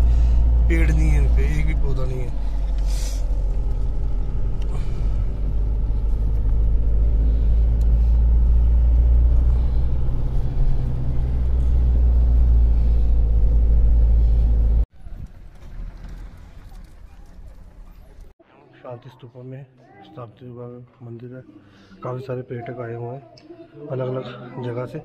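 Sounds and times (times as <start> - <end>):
car engine and road rumble: 0.0 - 18.4
faint outdoor sound: 0.0 - 25.0.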